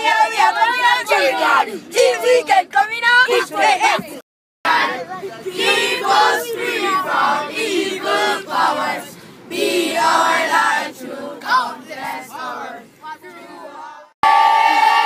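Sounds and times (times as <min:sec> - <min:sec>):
crowd of voices: 0:00.0 - 0:10.5
boys singing and chanting: 0:00.0 - 0:14.1.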